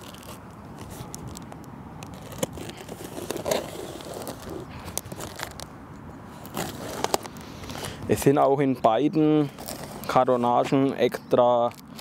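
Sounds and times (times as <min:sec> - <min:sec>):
cardboard tearing: 0:00.0 - 0:01.4, 0:02.1 - 0:05.6, 0:06.4 - 0:07.3.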